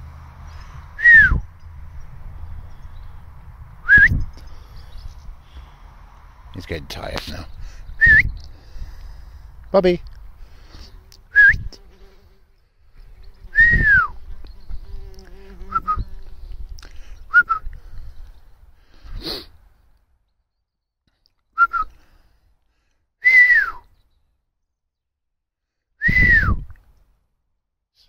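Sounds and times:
low wind rumble: 0:00.0 - 0:11.9, 0:12.8 - 0:19.9.

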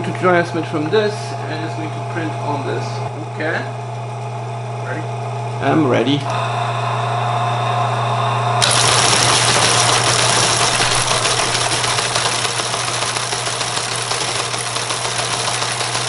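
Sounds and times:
motor hum: 0:00.0 - 0:16.0
fast mechanical clatter: 0:08.6 - 0:16.0.

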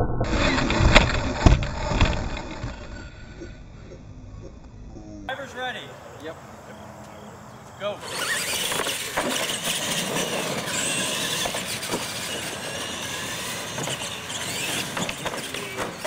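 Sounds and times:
toy truck motors whining: 0:07.8 - 0:16.0
tyre noise on concrete: 0:08.0 - 0:16.0
trucks knocking on landing: 0:08.1 - 0:16.0.

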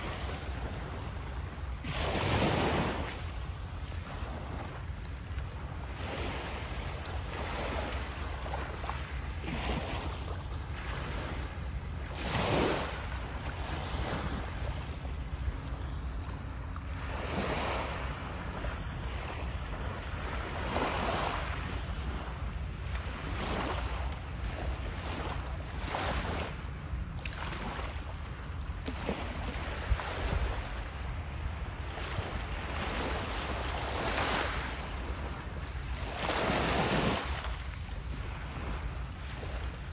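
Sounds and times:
small waves breaking: 0:00.0 - 0:39.9
wind rumble on microphone: 0:00.0 - 0:39.9.

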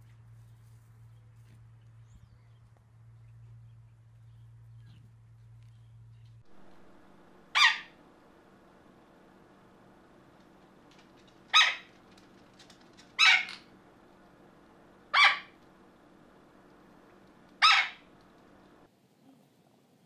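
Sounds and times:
parrot squawking: 0:07.4 - 0:08.0, 0:11.4 - 0:12.1, 0:13.0 - 0:13.8, 0:15.0 - 0:15.6, 0:17.4 - 0:18.3.

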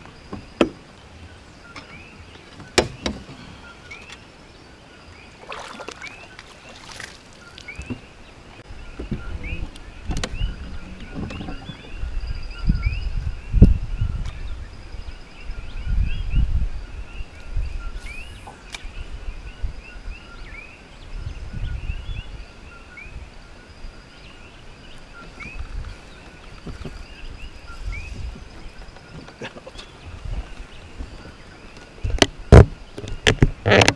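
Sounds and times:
wind buffeting microphone: 0:07.7 - 0:33.9.

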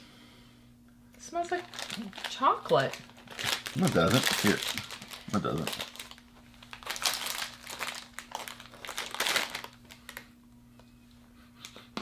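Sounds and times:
faint steady hum: 0:00.0 - 0:12.0
snack packet crinkling: 0:01.5 - 0:10.3.

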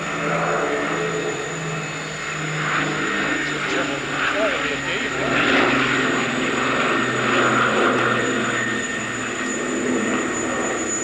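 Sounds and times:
propeller aircraft engines droning: 0:00.0 - 0:11.0.

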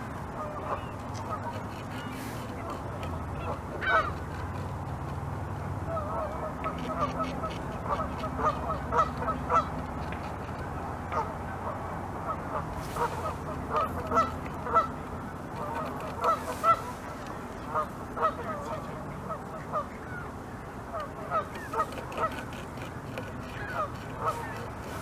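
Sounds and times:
low steady rumble: 0:00.0 - 0:25.0
geese honking: 0:00.3 - 0:04.3, 0:05.9 - 0:09.7, 0:11.1 - 0:14.9, 0:15.6 - 0:20.3, 0:20.9 - 0:25.0
beaver gnawing a branch: 0:00.7 - 0:05.4, 0:06.6 - 0:11.0, 0:12.7 - 0:18.0, 0:21.4 - 0:25.0.

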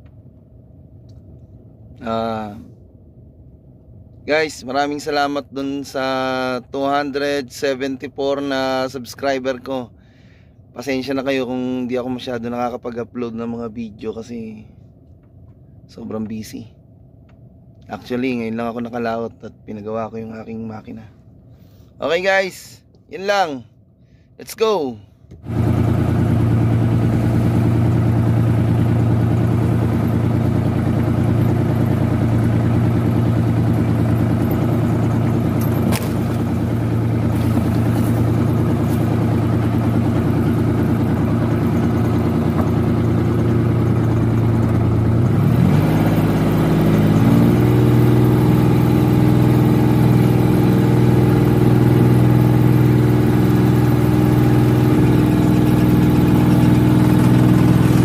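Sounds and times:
boat engine running: 0:25.4 - 0:58.0.

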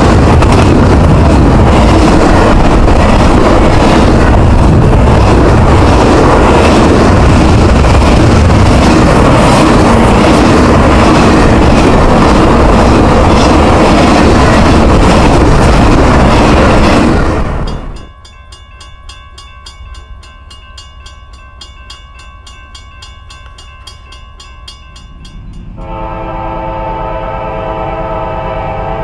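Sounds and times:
freight train rumbling: 0:00.0 - 0:29.0
crossing bell ringing: 0:17.6 - 0:26.4.

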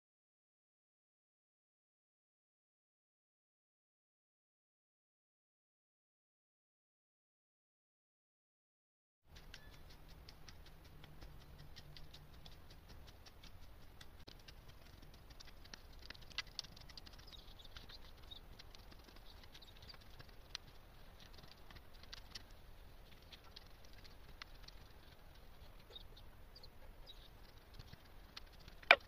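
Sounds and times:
low steady rumble: 0:09.3 - 0:29.0.

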